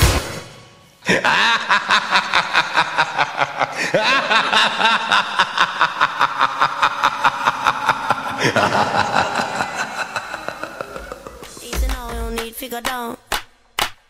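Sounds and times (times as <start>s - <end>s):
upbeat dance music: 11.4s - 13.4s.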